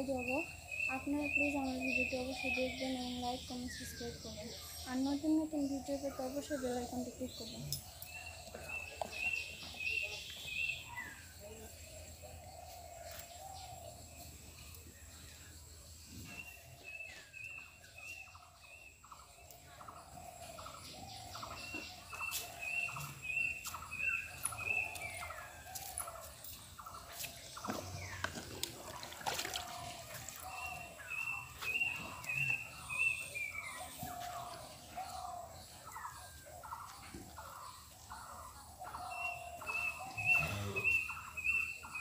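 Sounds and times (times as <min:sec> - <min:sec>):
lower wavering bird calls: 0:16.2 - 0:42.0
birds calling high notes: 0:39.0 - 0:42.0.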